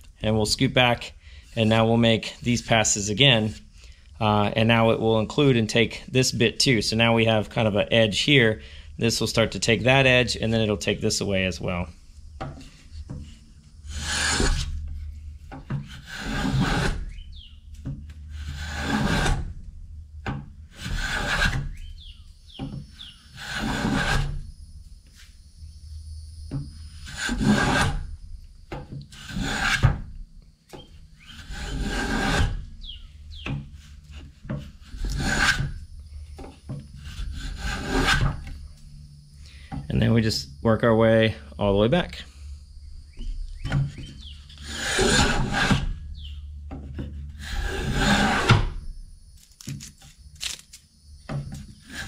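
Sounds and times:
hand plane shaving wood: 13.9s - 15.0s, 15.6s - 17.2s, 17.8s - 19.5s, 20.7s - 21.8s, 22.6s - 24.4s, 27.0s - 28.0s, 29.0s - 30.0s, 30.7s - 32.7s, 33.3s - 35.8s, 36.4s - 38.6s, 44.2s - 45.9s, 46.8s - 48.7s.

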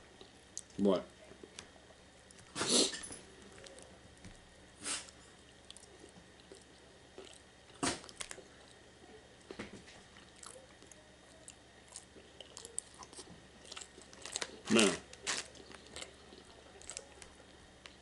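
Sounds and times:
chewing and wet mouth sounds: 3.4s - 4.0s, 5.1s - 18.0s.

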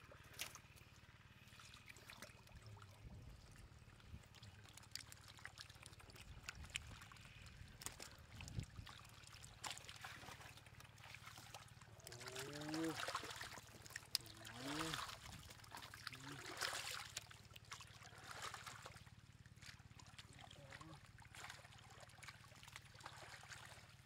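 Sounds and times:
water trickling: 1.4s - 19.0s.

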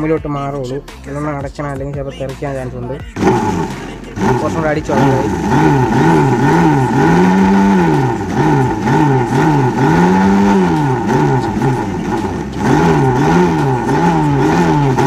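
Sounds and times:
mixer grinder motor: 3.2s - 15.0s.

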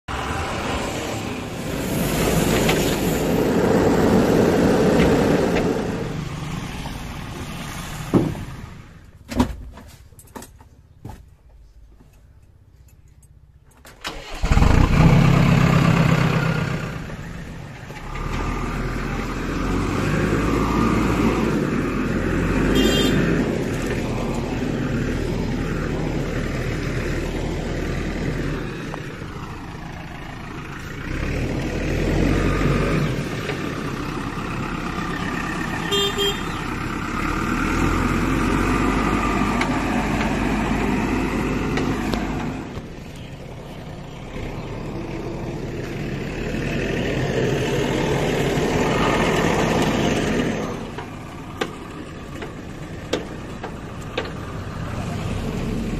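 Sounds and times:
diesel engine running: 0.0s - 9.2s, 14.1s - 55.9s
engine starting burst: 14.0s - 16.7s.

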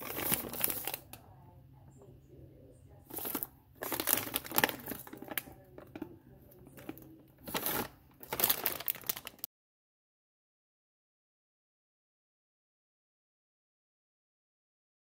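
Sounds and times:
plastic packets crinkling: 0.0s - 1.2s, 3.1s - 9.5s.

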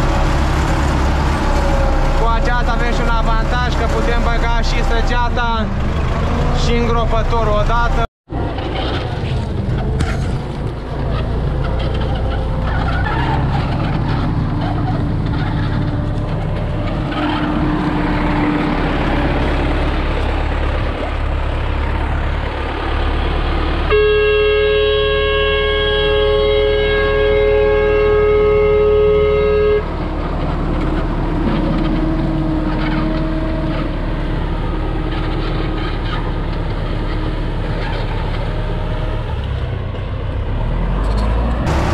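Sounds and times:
tractor diesel engine running: 0.0s - 41.9s
long steady horn note: 23.9s - 30.0s.

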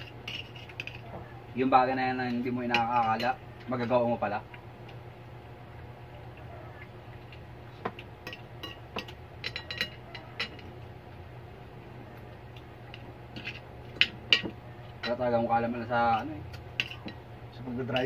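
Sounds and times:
low hum: 0.0s - 18.0s
cutlery clinking on plates: 7.9s - 10.7s, 13.4s - 15.2s, 16.8s - 17.2s.

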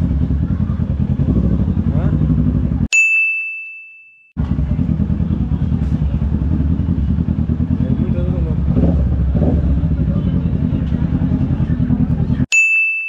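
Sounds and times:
motorcycle engine running: 0.0s - 2.9s, 4.4s - 12.5s
bright bell-like ding: 2.9s - 4.4s, 12.5s - 13.0s.

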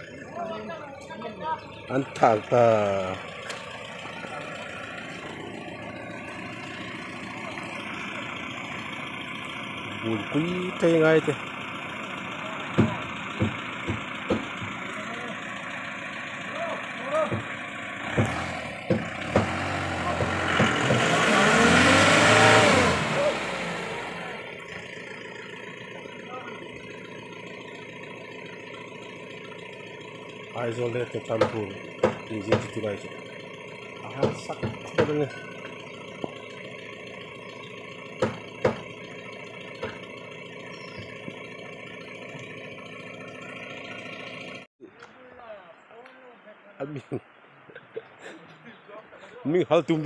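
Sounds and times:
truck engine revving hard: 1.6s - 44.7s
sharp knocks: 12.8s - 14.8s, 17.2s - 17.5s, 18.1s - 21.1s, 31.4s - 32.8s, 34.2s - 35.3s, 38.2s - 39.0s, 39.8s - 40.0s.

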